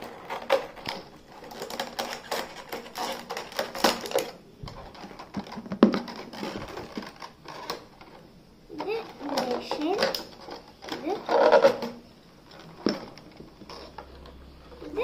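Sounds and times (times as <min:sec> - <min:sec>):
hard plastic toys clattering: 0:00.0 - 0:15.0.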